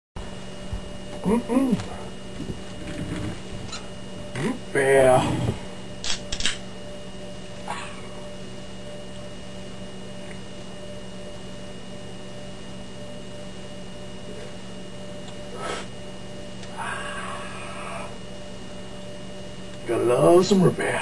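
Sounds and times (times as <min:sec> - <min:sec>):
electrical hum: 0:00.2 - 0:21.0
breathy exhale: 0:15.5 - 0:16.0, 0:16.7 - 0:18.2.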